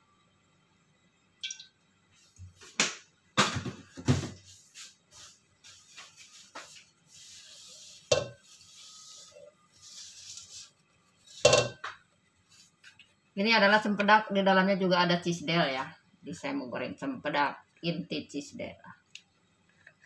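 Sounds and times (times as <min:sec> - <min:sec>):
faint hiss: 0:03.8 - 0:13.9
kitchen items knocking: 0:11.4 - 0:12.0.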